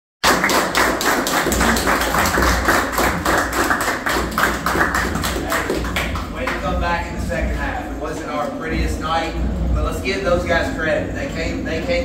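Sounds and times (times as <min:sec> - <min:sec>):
group clapping in rhythm: 0:00.2 - 0:07.5.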